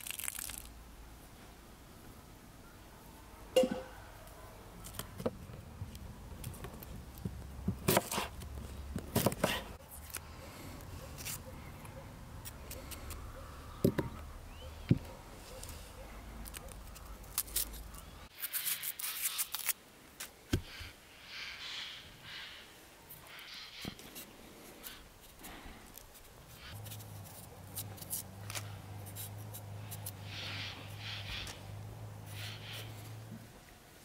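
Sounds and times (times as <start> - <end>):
knife scraping onion skin: 11.2 - 11.4, 16.4 - 19.8, 24.8 - 31.6
crackling: 15.6 - 20.4.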